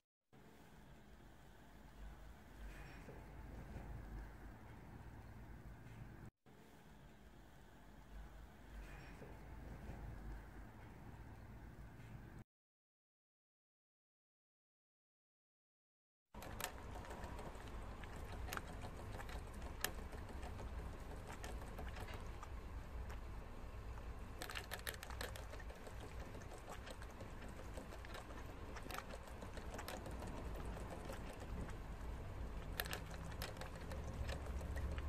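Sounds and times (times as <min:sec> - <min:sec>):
low steady hum: 0:00.4 - 0:12.4, 0:16.4 - 0:35.0
animal licking metal water spout: 0:16.4 - 0:35.0.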